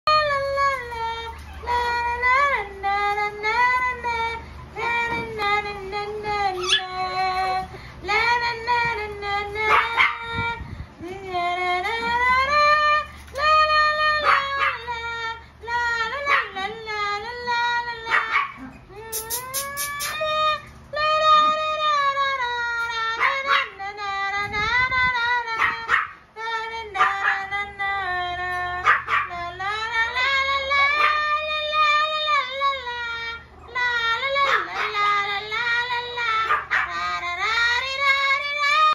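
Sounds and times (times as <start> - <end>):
puppy howling: 6.3 - 7.6, 12.0 - 15.2, 15.8 - 23.8, 28.6 - 38.9
puppy yelping: 6.5 - 7.1, 18.1 - 20.7, 36.4 - 37.0.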